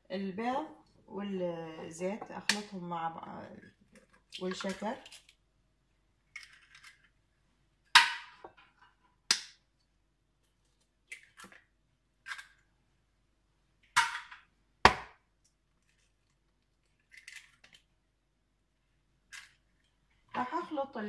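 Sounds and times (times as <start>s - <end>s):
eggs cracking on a plastic bowl: 11.0s - 12.7s.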